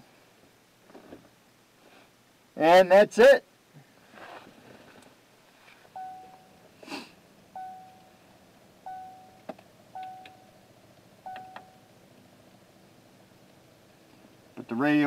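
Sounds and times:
short electronic beeps: 0:06.0 - 0:06.6, 0:07.6 - 0:08.1, 0:08.8 - 0:09.4, 0:10.0 - 0:10.5, 0:11.2 - 0:11.9
person sniffing: 0:06.8 - 0:07.2.

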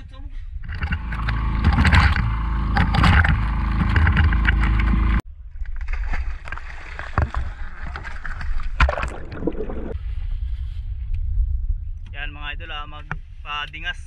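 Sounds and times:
heavy low rumble: 0:00.0 - 0:05.6
water splashing against boat: 0:00.6 - 0:10.0.

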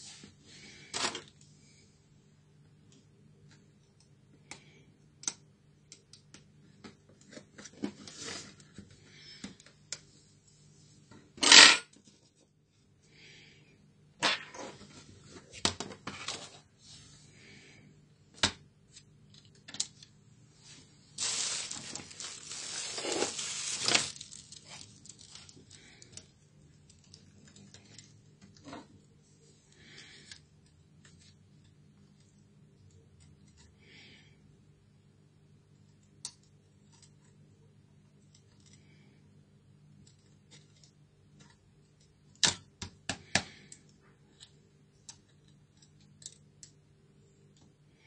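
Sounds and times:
scraping rustle: 0:21.2 - 0:25.5.

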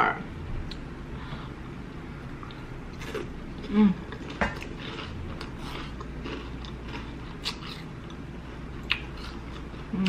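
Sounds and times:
crunchy food being chewed: 0:02.4 - 0:10.0.

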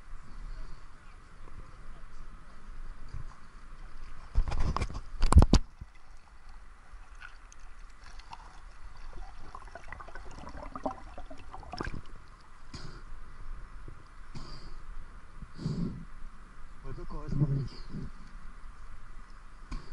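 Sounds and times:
splashing into water: 0:07.0 - 0:12.2
muffled underwater gurgling: 0:09.1 - 0:12.1.

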